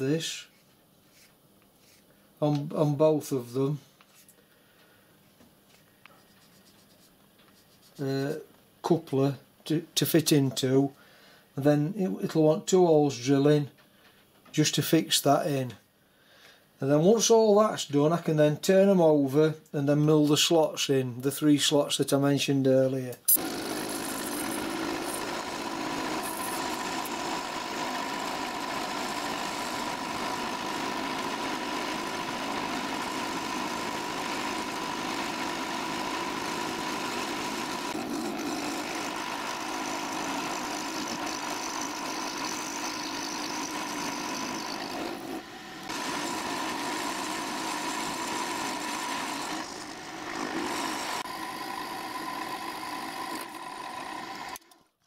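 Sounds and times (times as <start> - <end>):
milling machine cutting metal: 23.3 - 54.8.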